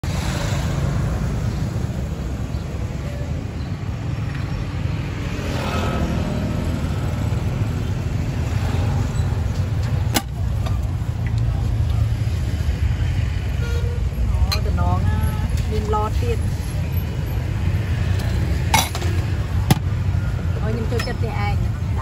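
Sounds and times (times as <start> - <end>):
road traffic rumble: 0.0 - 22.0
vehicle passing close by: 5.0 - 9.4.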